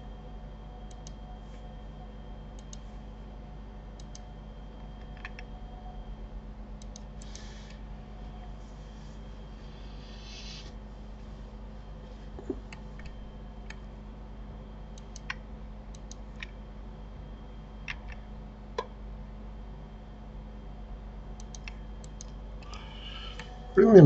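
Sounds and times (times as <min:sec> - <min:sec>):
steady low hum: 0:00.0 - 0:24.0
computer mouse and keyboard clicks: 0:00.9 - 0:01.2, 0:02.6 - 0:02.8, 0:04.0 - 0:04.3, 0:05.0 - 0:05.5, 0:06.8 - 0:07.5, 0:14.9 - 0:16.6, 0:21.4 - 0:22.8.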